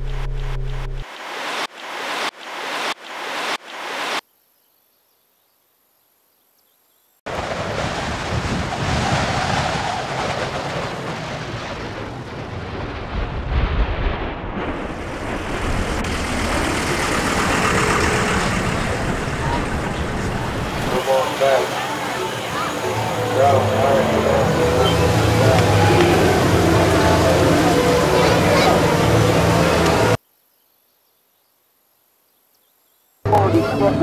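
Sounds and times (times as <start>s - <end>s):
loud dense rumbling: 7.3s - 30.2s.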